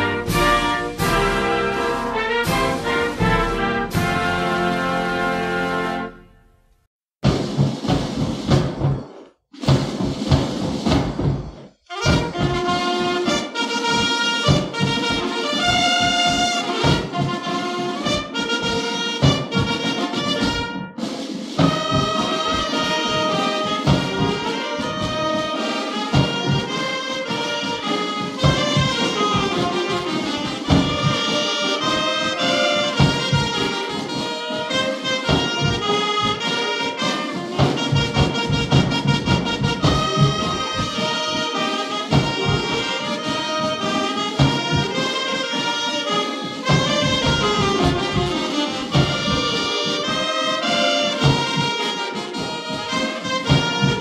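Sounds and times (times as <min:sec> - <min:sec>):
steady drumbeat: 0:00.0 - 0:05.8, 0:07.2 - 0:54.0
brass band playing a march: 0:00.0 - 0:06.4, 0:07.2 - 0:54.0.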